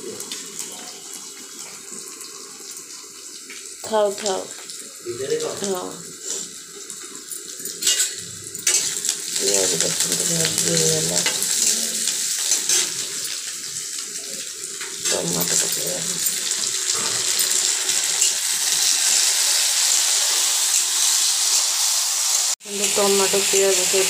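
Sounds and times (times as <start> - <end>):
onions and tomatoes sizzling in oil: 0.0 - 24.0
steel spatula stirring: 7.6 - 9.8, 12.4 - 13.3.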